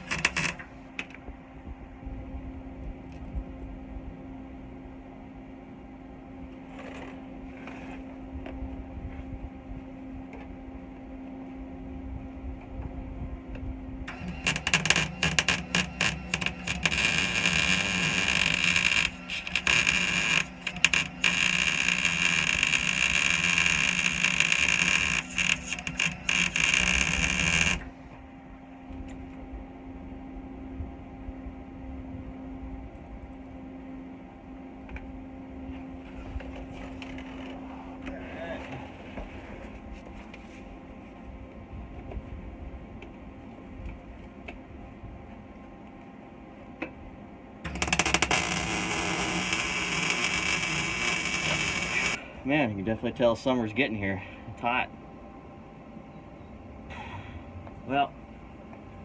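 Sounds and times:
welding arc crackling and sizzling: 0.0s - 0.8s, 14.1s - 28.2s, 47.6s - 52.2s
steady low hum: 0.0s - 59.0s.

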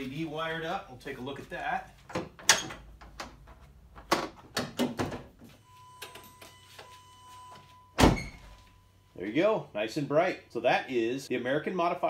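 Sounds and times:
faint steady high tone: 5.6s - 10.7s.

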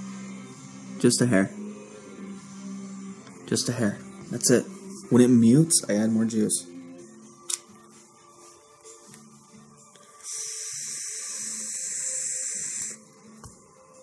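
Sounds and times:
e-liquid sizzling with hiss: 10.2s - 13.0s.

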